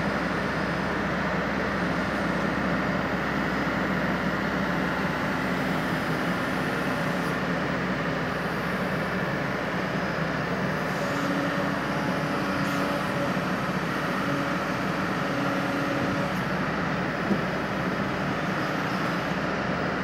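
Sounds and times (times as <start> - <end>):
excavator diesel engine running: 0.0 - 20.0.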